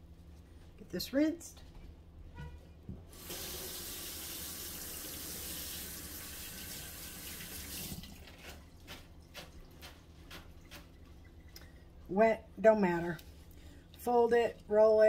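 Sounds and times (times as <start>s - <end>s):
kitchen faucet running: 3.1s - 8.5s.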